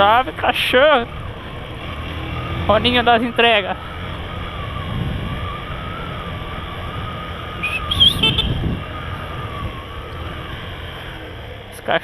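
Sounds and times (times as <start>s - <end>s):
motorcycle engine rumbling: 0.0s - 12.0s
wind on microphone: 3.6s - 10.7s.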